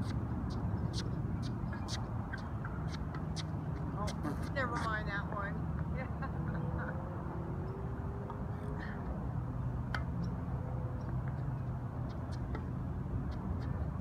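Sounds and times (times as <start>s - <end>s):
tennis balls struck by rackets: 9.8s - 10.3s.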